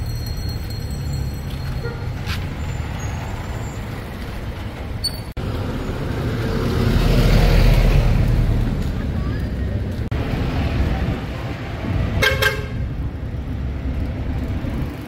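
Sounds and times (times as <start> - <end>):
street traffic: 0.0 - 15.0.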